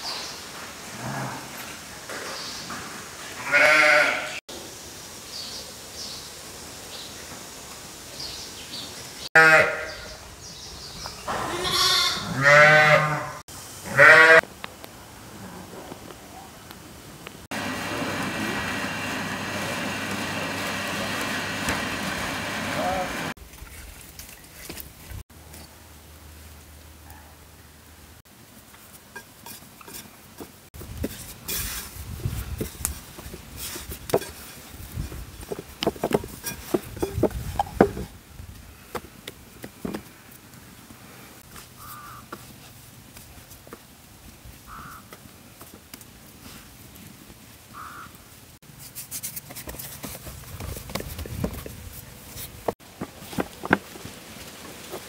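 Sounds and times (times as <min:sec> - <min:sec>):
sheep bleating: 0:03.4 - 0:04.4, 0:09.4 - 0:10.0, 0:11.4 - 0:14.4.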